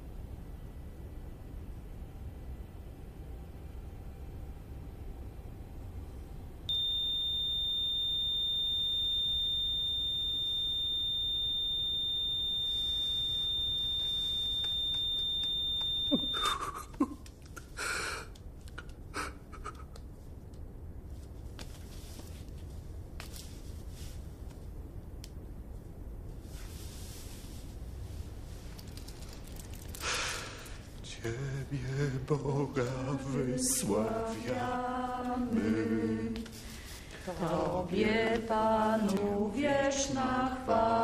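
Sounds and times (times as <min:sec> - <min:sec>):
heart monitor flatline tone: 0:06.7 - 0:16.6
soft rustles: 0:21.0 - 0:24.8, 0:25.7 - 0:30.0.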